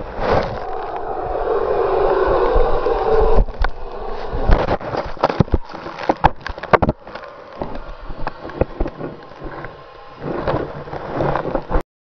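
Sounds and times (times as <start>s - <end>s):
snow scraping and crunching: 0.0s - 0.9s.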